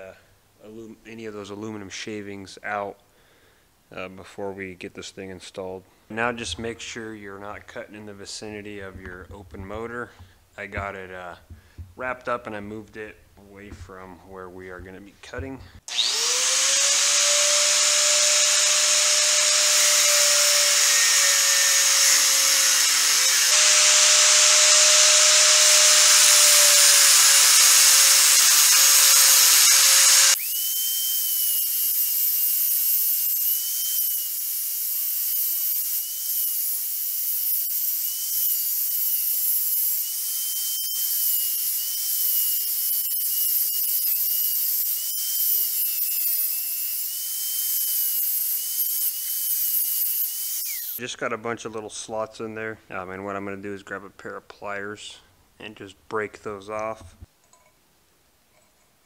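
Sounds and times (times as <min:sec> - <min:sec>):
angle grinder cutting metal: 0:15.9 - 0:51.0.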